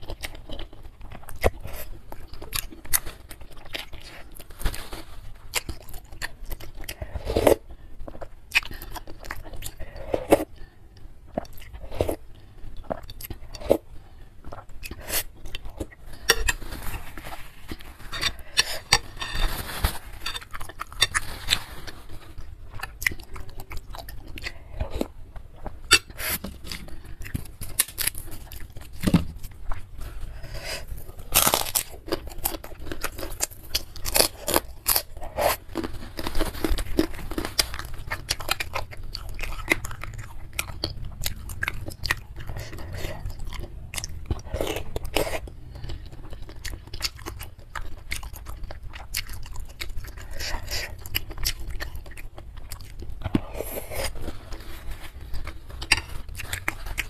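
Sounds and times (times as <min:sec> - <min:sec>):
wet chewing: 0:20.2 - 0:57.0
crunchy bites: 0:30.7 - 0:54.6.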